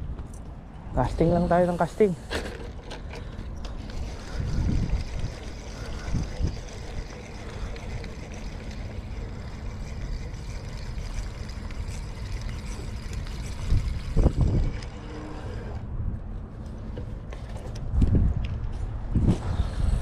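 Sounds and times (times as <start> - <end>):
wind buffeting microphone: 3.3 - 16.4, 17.7 - 20.0.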